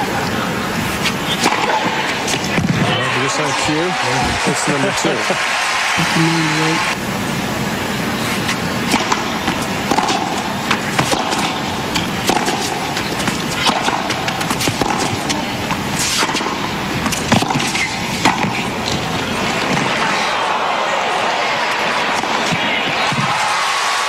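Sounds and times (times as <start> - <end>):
crowd hum: 0.0 - 24.0
rackets hitting tennis ball: 0.7 - 3.0, 8.2 - 20.3, 21.7 - 23.6.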